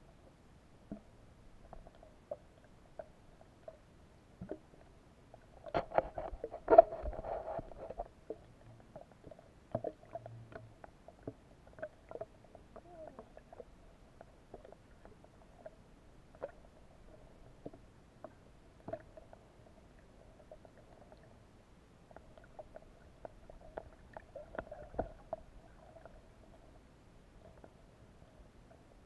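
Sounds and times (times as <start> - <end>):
underwater clicks and knocks: 0.9 - 3.8, 5.6 - 8.5, 16.3 - 19.3, 22.2 - 26.1.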